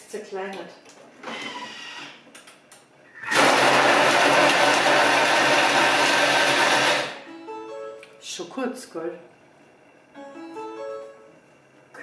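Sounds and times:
food processor blade chopping: 0:03.3 - 0:07.2.

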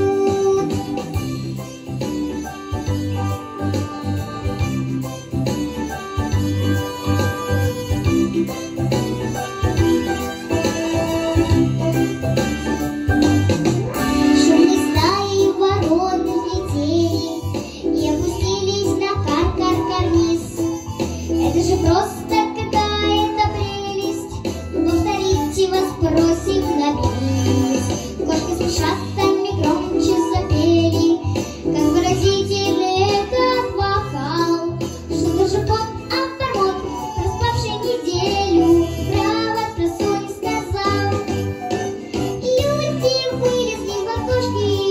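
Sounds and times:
girl singing into microphone: 0:00.0 - 0:04.8, 0:14.2 - 0:44.9
instrumental accompaniment with bass: 0:00.0 - 0:44.9.

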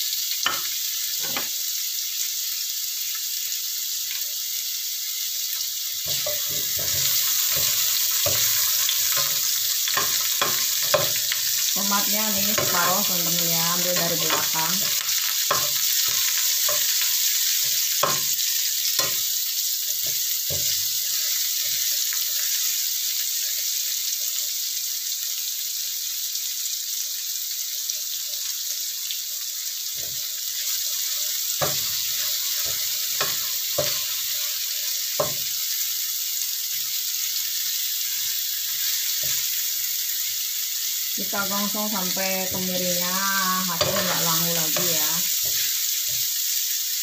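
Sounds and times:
food sizzling in hot oil: 0:00.0 - 0:47.0
spatula scraping a pan: 0:06.1 - 0:19.2, 0:20.0 - 0:22.7, 0:29.9 - 0:35.6, 0:42.5 - 0:46.2.

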